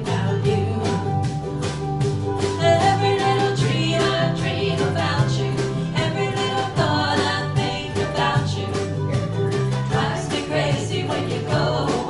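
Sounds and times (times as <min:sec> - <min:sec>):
electric bass line: 0:00.0 - 0:12.0
mandolin: 0:00.0 - 0:12.0
strummed guitars: 0:00.0 - 0:12.0
ukulele: 0:00.0 - 0:12.0
voices singing: 0:02.6 - 0:12.0.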